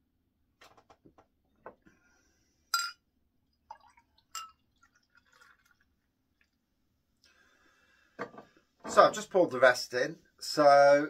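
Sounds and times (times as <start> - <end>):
glass clinks: 2.8 - 3.0, 4.3 - 4.6
beer pouring into a glass: 3.6 - 6.6.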